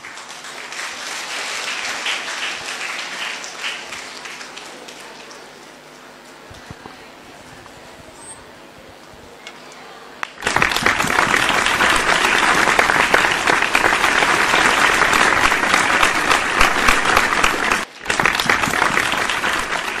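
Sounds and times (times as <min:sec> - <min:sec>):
audience applauding: 0:00.0 - 0:05.8, 0:10.2 - 0:20.0.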